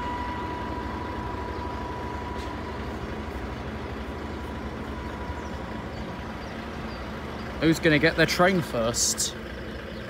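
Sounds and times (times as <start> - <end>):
faint high-pitched tone: 0.0 - 3.4
steady low rumble: 0.0 - 10.0.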